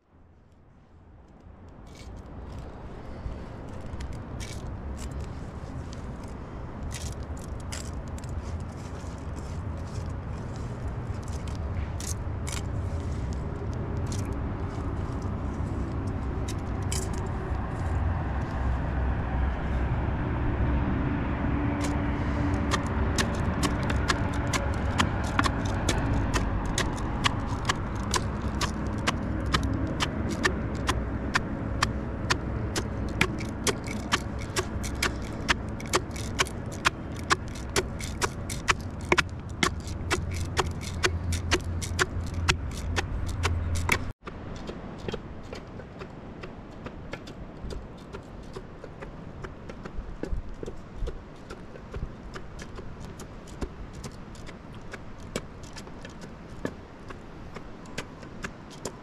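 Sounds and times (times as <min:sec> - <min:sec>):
pestle grinding in metal mug: 0:21.8 - 0:56.8.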